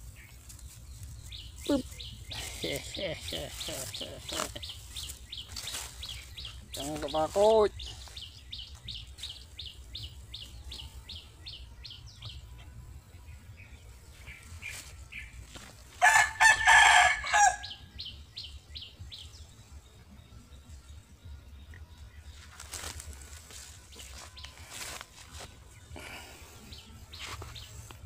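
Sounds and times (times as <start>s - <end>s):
rooster crowing: 16.0s - 17.8s.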